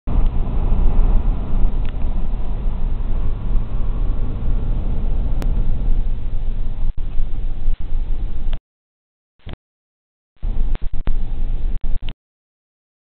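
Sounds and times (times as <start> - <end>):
wind buffeting microphone: 0.1 - 8.6.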